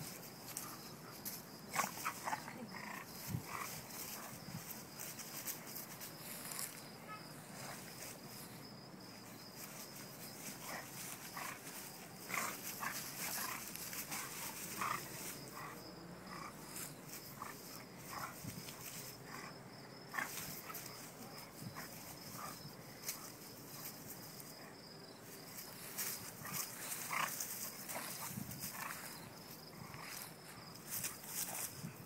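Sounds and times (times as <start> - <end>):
dogs play-wrestling noises: 9.6 - 19.5, 25.5 - 29.2.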